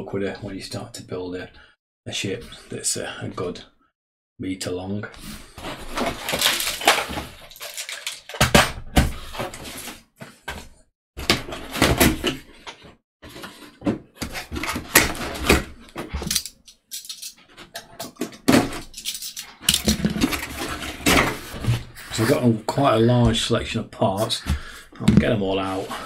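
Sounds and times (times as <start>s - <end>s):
cardboard box scraping and rustling: 19.9s - 22.4s.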